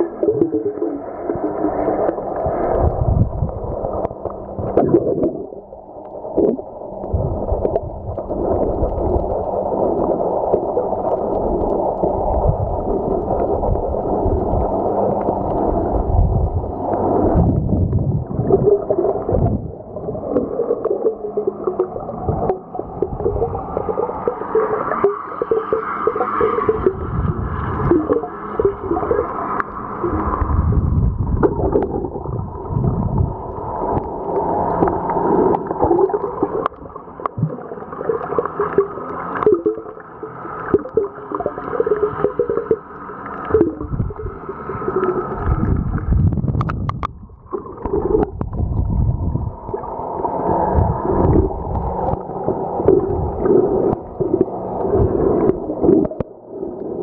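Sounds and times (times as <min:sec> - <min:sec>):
low water surges: 0:00.0 - 0:57.0
underwater water gurgling: 0:00.0 - 0:57.0
wavering hum: 0:12.4 - 0:57.0.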